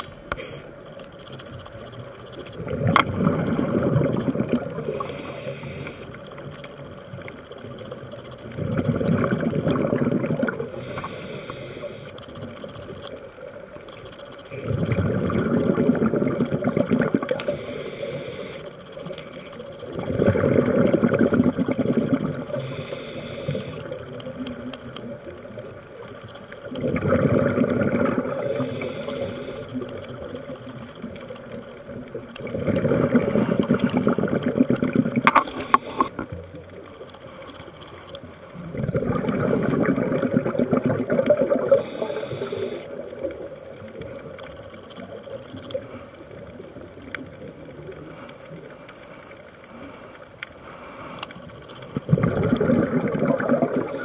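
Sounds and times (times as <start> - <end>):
regulator hiss: 0.1 - 1.0, 4.8 - 6.3, 10.7 - 12.4, 17.4 - 19.0, 22.4 - 24.0, 28.3 - 29.9, 35.4 - 36.3, 41.6 - 43.0
bubbles burbling underwater: 1.8 - 5.3, 6.2 - 11.1, 14.5 - 17.6, 18.9 - 22.8, 23.5 - 48.8, 51.4 - 54.0.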